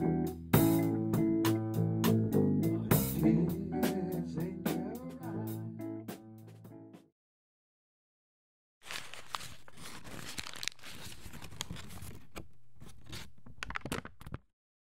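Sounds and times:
crackling rustling noise: 0:08.8 - 0:14.5.

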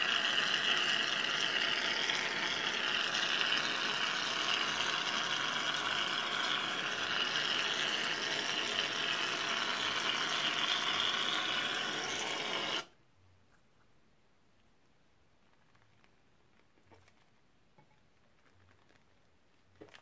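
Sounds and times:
aerosol can spraying: 0:00.0 - 0:12.9.

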